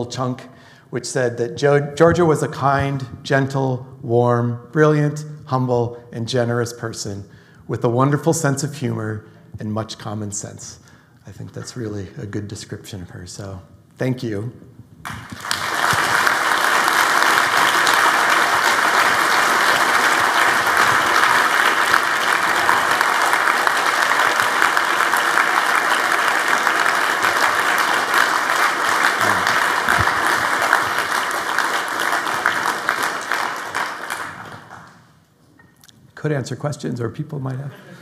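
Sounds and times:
audience applauding: 15.0s - 35.2s.

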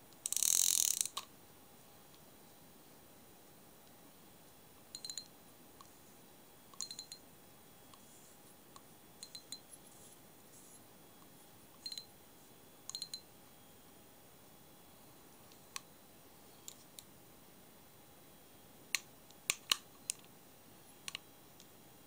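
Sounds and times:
fishing reel metallic clicks: 0.2s - 1.2s.

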